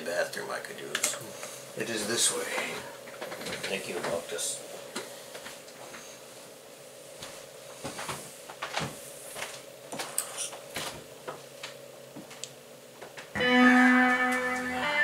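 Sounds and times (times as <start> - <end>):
keyboard playing sustained chords: 13.4 - 15.0.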